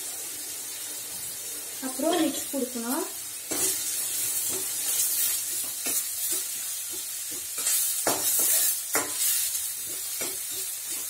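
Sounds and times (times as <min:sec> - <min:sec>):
onions sizzling in oil: 0:00.0 - 0:11.0
stirring scraping against pan: 0:03.5 - 0:11.0.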